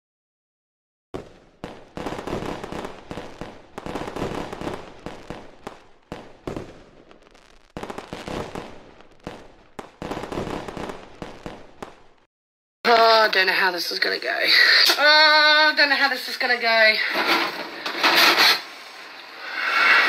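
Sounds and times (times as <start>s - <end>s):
fireworks bangs: 1.2s - 12.3s, 17.1s - 20.0s.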